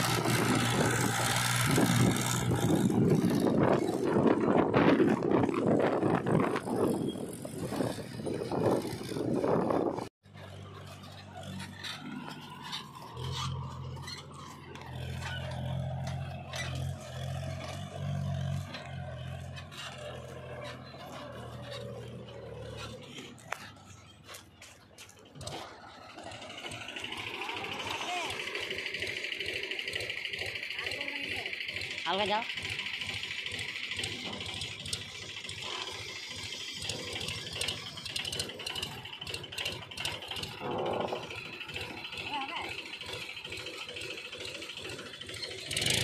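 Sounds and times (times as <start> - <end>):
tractor diesel engine droning: 0.0 - 46.0
scrapes and knocks: 40.1 - 41.6.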